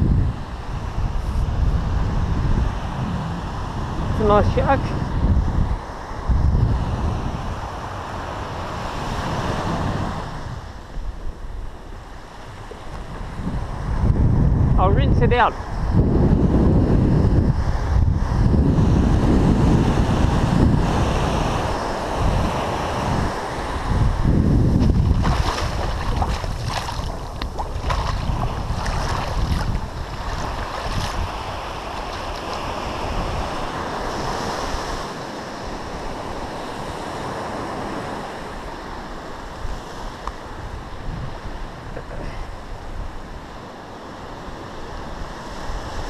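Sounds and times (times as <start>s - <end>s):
surf washing onto beach: 0.0s - 14.6s, 15.3s - 46.0s
wind buffeting microphone: 0.0s - 43.6s
splashing in shallow water: 24.7s - 34.0s.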